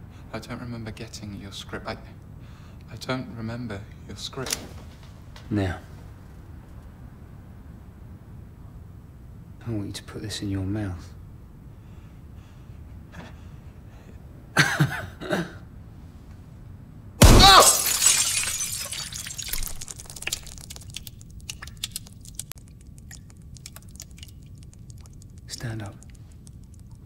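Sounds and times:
glass shattering: 0:17.2 - 0:21.2
glass fragments tinkling: 0:17.2 - 0:22.3.

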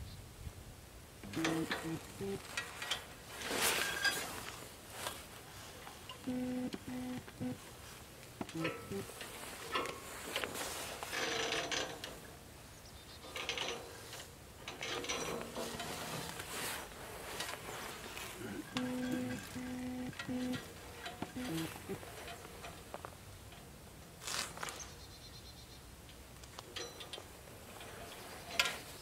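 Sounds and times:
winch clicks and rattles: 0:01.2 - 0:03.2, 0:08.4 - 0:12.3, 0:13.2 - 0:16.8, 0:18.2 - 0:23.7, 0:26.1 - 0:28.9
wire cable scraping over metal: 0:01.3 - 0:05.1, 0:08.5 - 0:12.2, 0:13.3 - 0:22.8.

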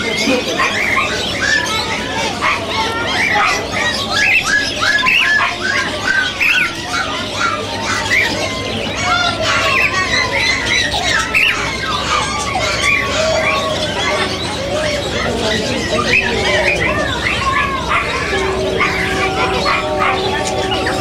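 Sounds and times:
caged birds squawking: 0:00.0 - 0:21.0.

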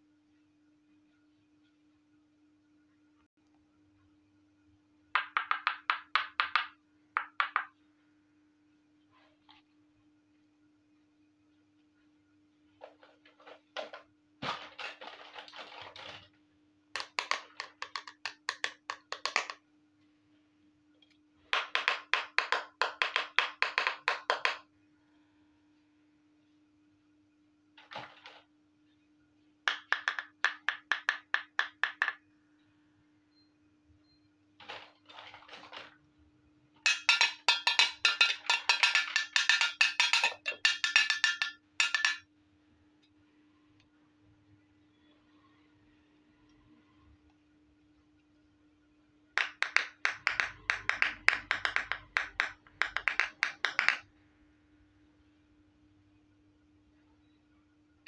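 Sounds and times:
tin plate clinking: 0:36.9 - 0:42.2.

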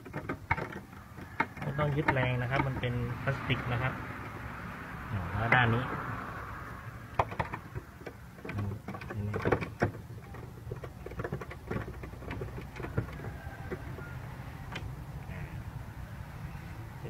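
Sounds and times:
hand tool clicks and knocks: 0:00.0 - 0:03.0, 0:07.1 - 0:14.0
plastic parts knocking: 0:00.0 - 0:04.4, 0:07.1 - 0:15.0.

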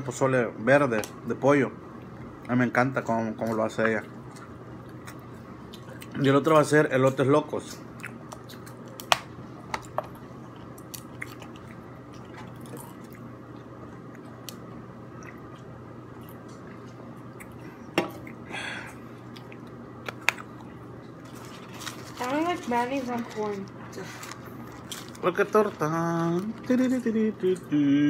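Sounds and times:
steady low hum: 0:00.0 - 0:28.0
faint chewing and mouth clicks: 0:03.4 - 0:09.2, 0:09.8 - 0:18.4, 0:19.2 - 0:21.2.

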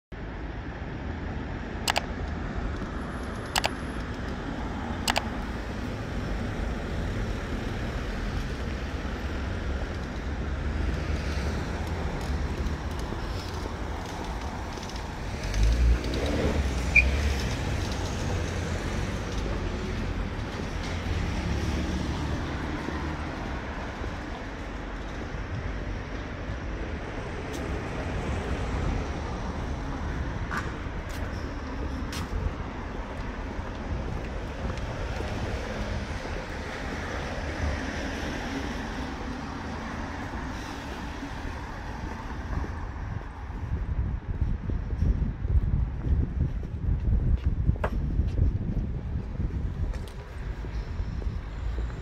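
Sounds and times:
traffic rumble: 0:00.1 - 0:52.0
sharp clicks: 0:01.9 - 0:05.5.

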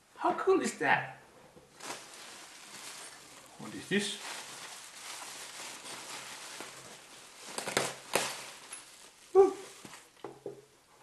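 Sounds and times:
paper and bubble wrap rustling: 0:01.7 - 0:10.2.

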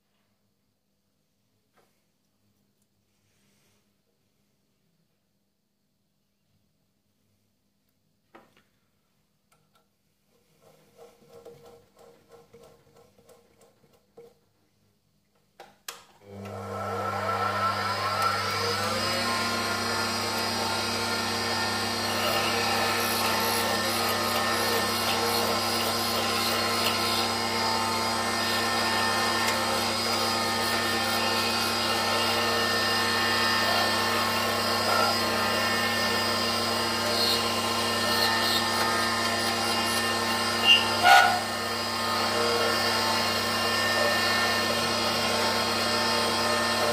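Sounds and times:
lathe motor humming and whining: 0:16.3 - 0:46.9.

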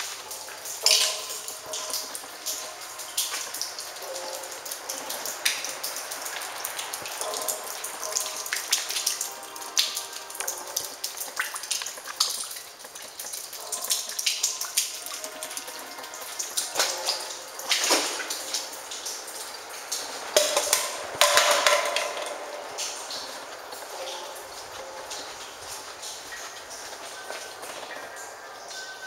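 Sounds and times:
drip-like clicks and taps: 0:00.0 - 0:29.0.

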